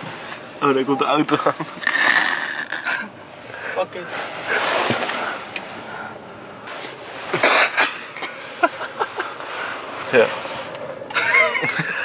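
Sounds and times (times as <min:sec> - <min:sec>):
low steady background noise: 0:00.0 - 0:12.0
breathy vocal outbursts: 0:01.8 - 0:03.8.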